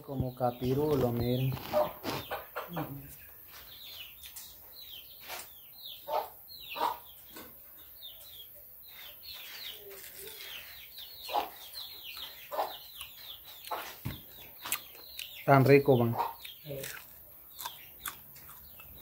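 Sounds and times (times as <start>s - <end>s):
birds chirping: 0.0s - 19.0s
sharp bird calls: 0.0s - 19.0s.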